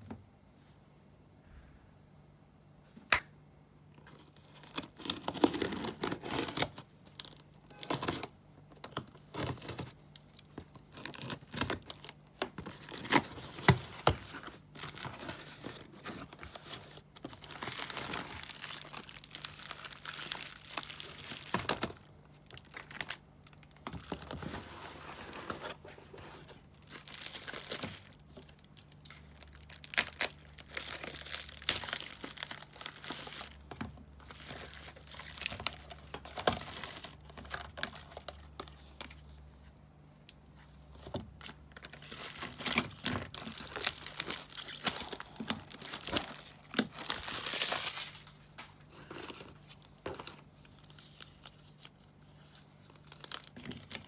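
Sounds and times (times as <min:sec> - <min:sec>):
plastic packaging crinkling: 0:04.1 - 0:39.4, 0:41.4 - 0:54.0
packing tape peeling and tearing: 0:04.6 - 0:06.8.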